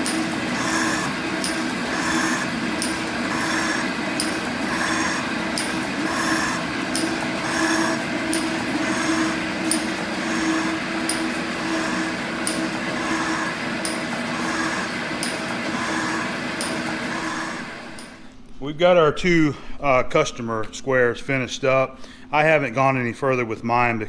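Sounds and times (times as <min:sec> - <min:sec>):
metal shaper ram stroking: 0:00.0 - 0:15.0
steady machine hum: 0:00.0 - 0:24.0.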